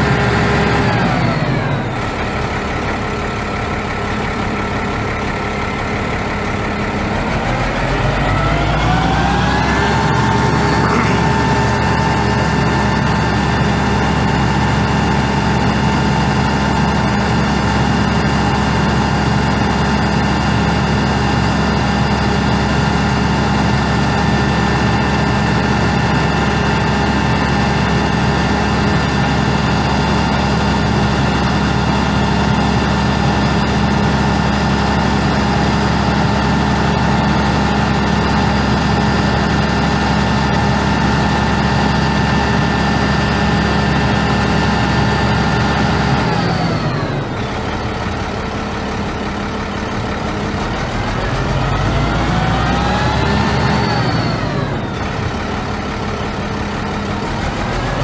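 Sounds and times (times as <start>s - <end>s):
diesel engine idling: 0.0s - 58.0s
steady whine: 5.6s - 15.3s.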